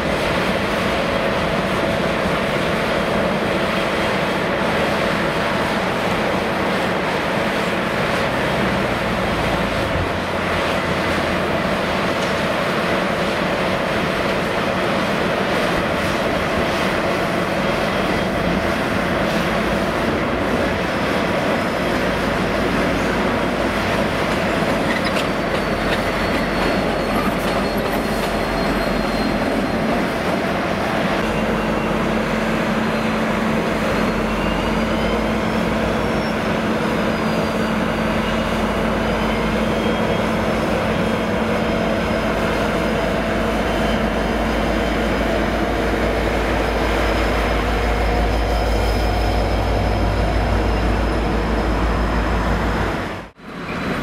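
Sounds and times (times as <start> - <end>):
locomotive engine rumble: 0.0 - 54.0
wheel squeal on track: 24.5 - 30.5, 32.8 - 41.3, 46.7 - 52.6.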